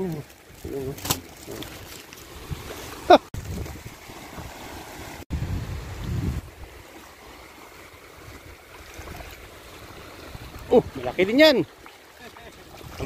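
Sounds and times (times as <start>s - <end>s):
water lapping on sand: 0.0s - 13.0s
wind buffeting microphone: 3.4s - 4.7s, 5.3s - 6.8s, 12.6s - 13.0s.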